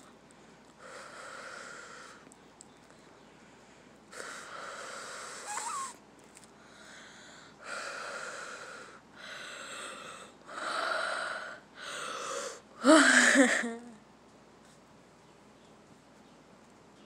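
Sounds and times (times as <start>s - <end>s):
wheezy breaths: 0.0s - 2.3s, 3.0s - 6.0s, 6.6s - 13.7s.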